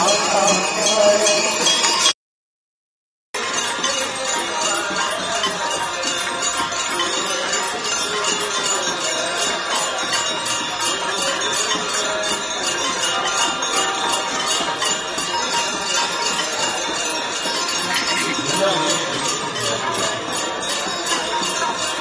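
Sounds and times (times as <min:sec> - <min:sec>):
hand bells ringing rapidly: 0:00.0 - 0:02.1, 0:03.4 - 0:22.0.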